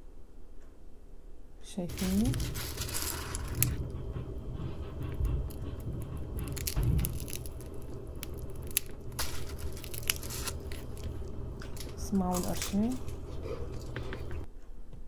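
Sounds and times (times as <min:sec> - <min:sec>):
flatbread crunching and crackling: 0:01.9 - 0:03.9, 0:04.8 - 0:14.5.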